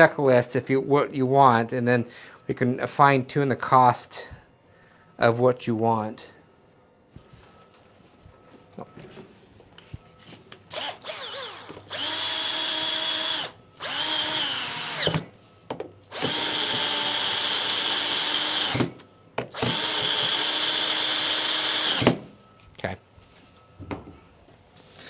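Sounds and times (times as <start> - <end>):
cordless drill motor whining: 10.6 - 15.4, 16.0 - 22.2.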